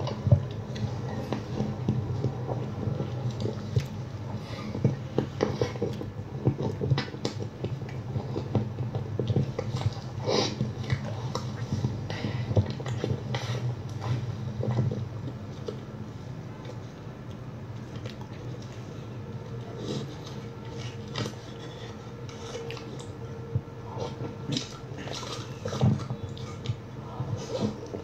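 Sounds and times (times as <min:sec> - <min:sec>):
low hum: 0:00.0 - 0:28.0.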